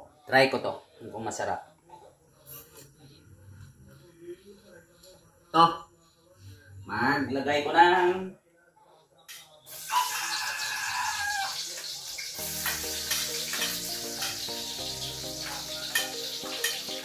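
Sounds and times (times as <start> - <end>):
food sizzling in hot oil: 9.7 - 17.0
background music: 12.3 - 17.0.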